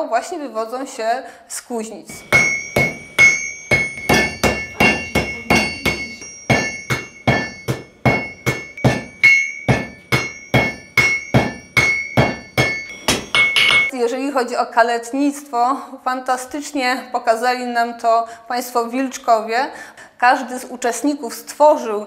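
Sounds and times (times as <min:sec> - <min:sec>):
hammer striking iron on anvil: 0:02.2 - 0:13.9.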